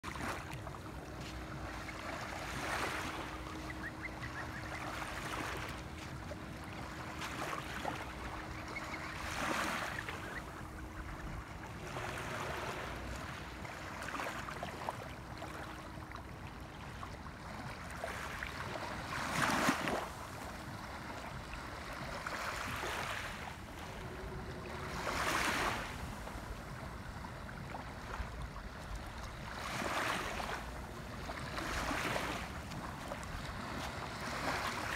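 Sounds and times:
faint steady hum: 0.0 - 34.9
small waves lapping: 0.0 - 34.9
steady low rumble: 23.5 - 29.6.

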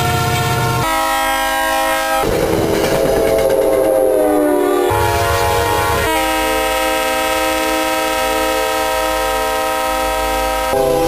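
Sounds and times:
locomotive air horns: 0.0 - 11.0.

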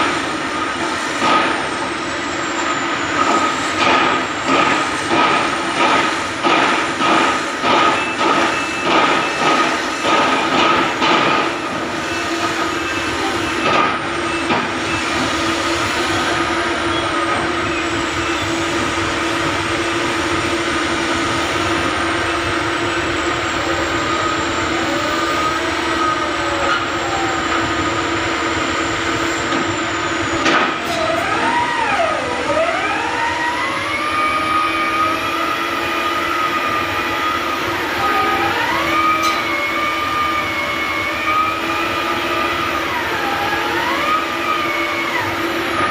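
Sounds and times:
high whine: 0.0 - 45.9
piling rig engine and hydraulics: 0.0 - 45.9.

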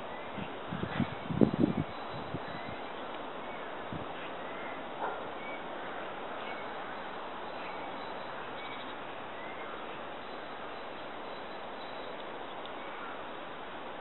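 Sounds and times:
outdoor background rush: 0.0 - 14.0
faint bird chirps: 1.0 - 13.2.

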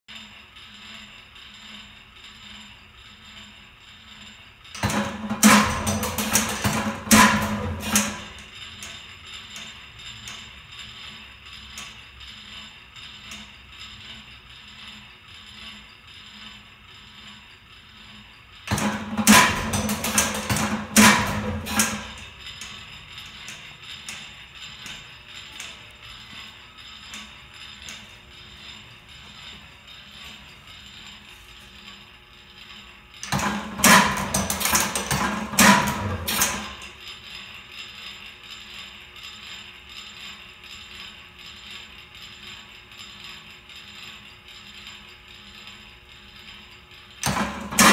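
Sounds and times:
clattering gearing: 0.2 - 38.1, 43.9 - 47.9
engine rattling clatter: 4.7 - 14.8.

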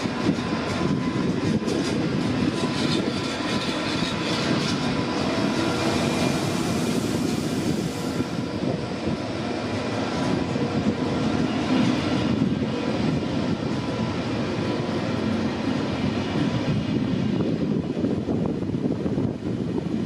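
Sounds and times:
train whining tones: 0.0 - 18.6
train mechanical rumble: 0.0 - 20.0.

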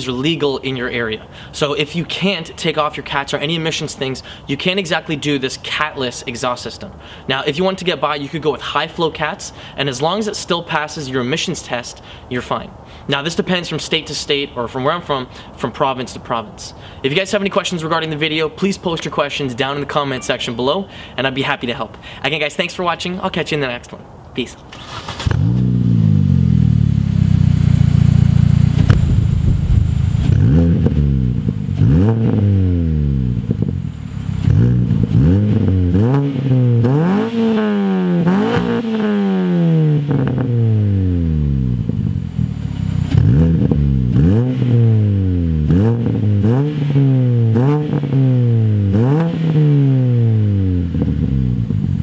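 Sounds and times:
car engine revving: 24.8 - 52.0.

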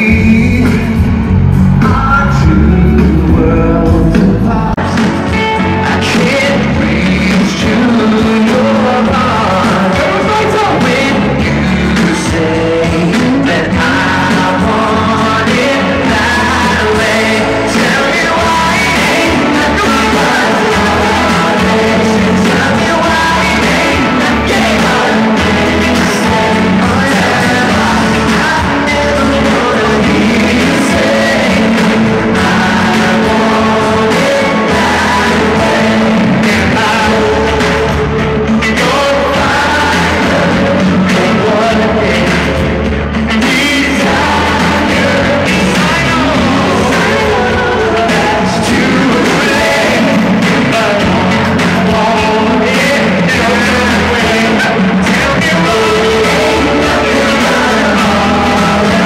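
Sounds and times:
amplified backing track with beat: 0.0 - 59.0
vocal group singing: 0.0 - 59.0.

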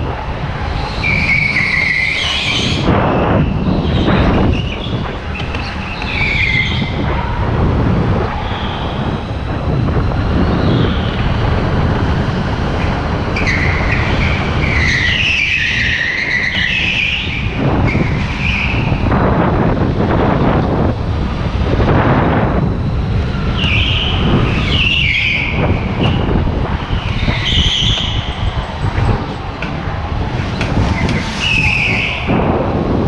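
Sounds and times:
tyres squealing: 0.8 - 7.4, 12.8 - 19.0.

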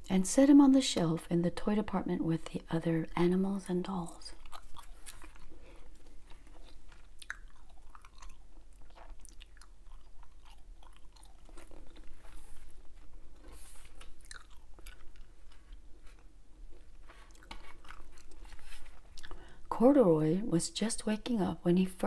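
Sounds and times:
gum chewing clicks: 4.3 - 12.4, 14.0 - 16.3.

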